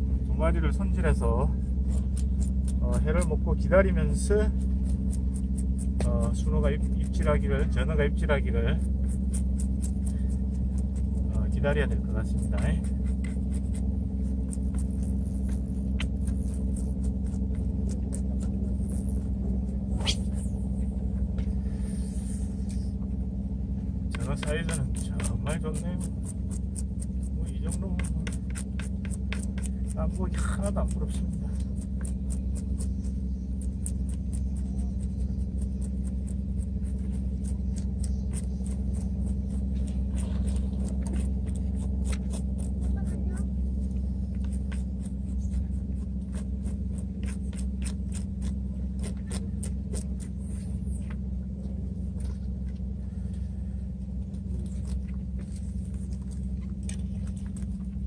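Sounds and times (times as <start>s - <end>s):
low mechanical hum: 0.0s - 58.0s
low rumble: 0.0s - 58.0s
knife scraping fish scales: 44.3s - 51.0s.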